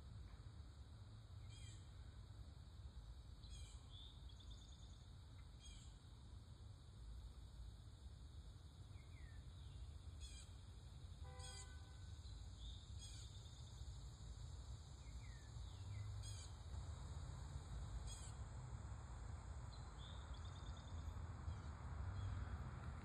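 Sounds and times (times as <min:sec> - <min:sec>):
bird trill: 0:11.3 - 0:11.9, 0:16.0 - 0:16.6
distant traffic rumble: 0:15.6 - 0:23.0.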